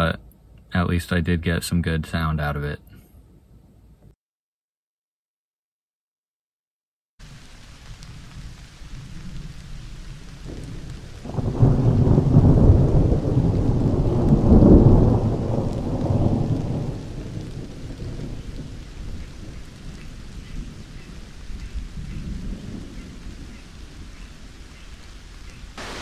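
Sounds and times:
steady rain: 7.2s - 26.0s
rolling thunder: 8.0s - 24.6s.

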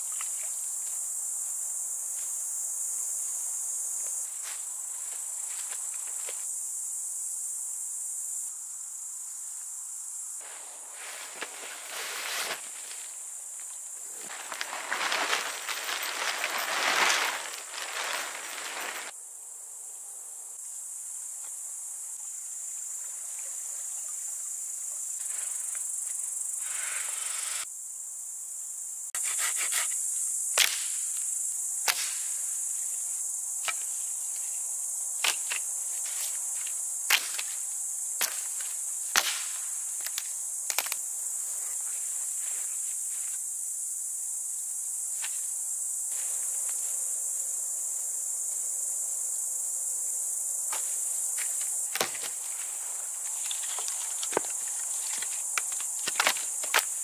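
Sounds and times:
crickets chirring: 0.0s - 57.0s
tent fabric rustling and flapping: 10.4s - 13.2s, 14.2s - 19.1s
dry branches cracking: 14.3s - 19.1s.

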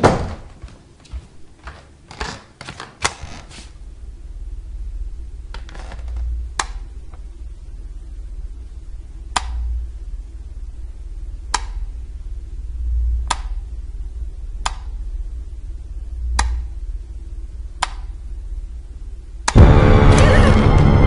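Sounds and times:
low rumble: 3.8s - 21.0s
sharp clicks: 16.3s - 16.7s, 17.8s - 18.1s.

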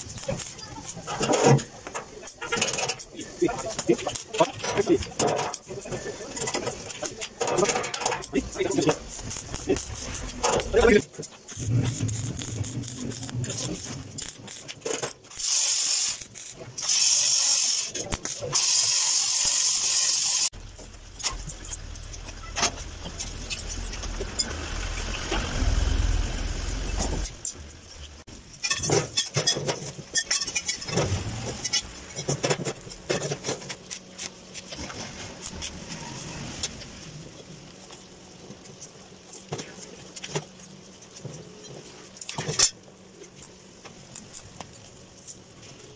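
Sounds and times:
steel pieces clinking: 0.0s - 19.8s, 27.2s - 34.5s
welding arc crackling and hissing: 0.0s - 45.9s.

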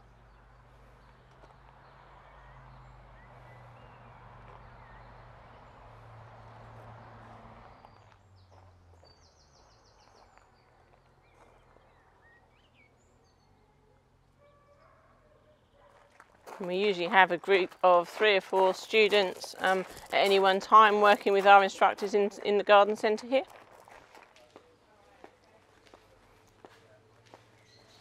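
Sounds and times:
small birds chirping: 7.0s - 16.0s, 27.1s - 28.0s.

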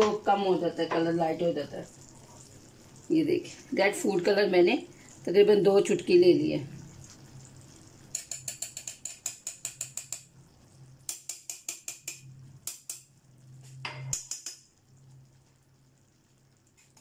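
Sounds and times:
teaspoon clinking against metal pan: 8.1s - 10.2s.

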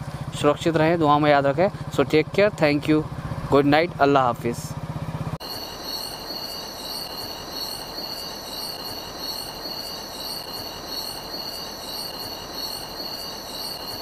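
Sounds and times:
night insects shrilling: 5.4s - 14.0s
steady night ambience hiss: 5.4s - 14.0s.

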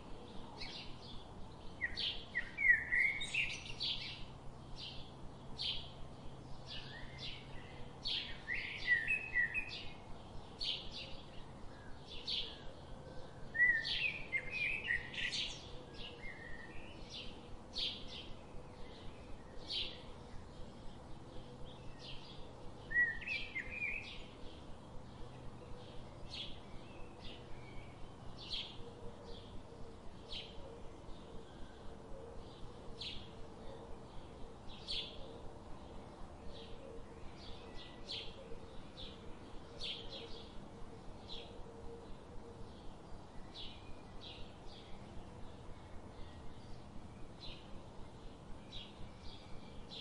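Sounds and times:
small birds chirping: 0.0s - 50.0s.

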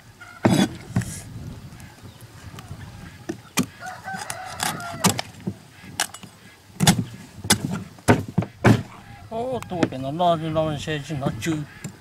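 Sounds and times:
fowl calling: 0.0s - 12.0s
sharp knocks: 6.8s - 9.0s.

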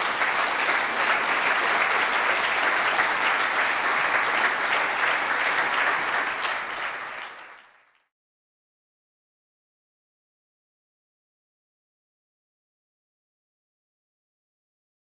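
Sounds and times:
audience clapping: 0.0s - 8.1s.

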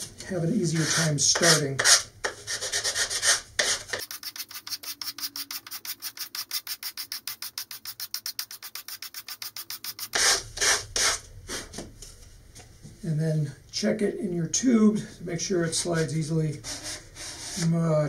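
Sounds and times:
sandpaper scraping cardboard: 0.7s - 11.7s.

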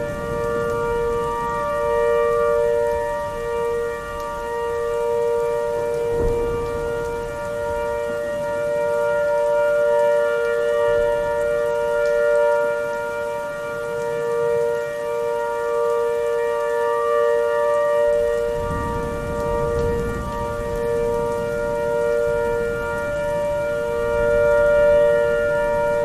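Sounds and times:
warning siren: 0.0s - 26.0s.

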